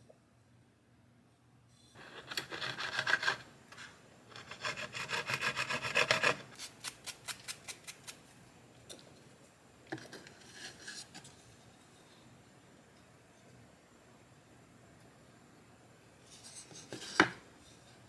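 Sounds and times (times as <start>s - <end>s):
handsaw cutting wood: 2.3s - 3.4s, 4.4s - 6.5s.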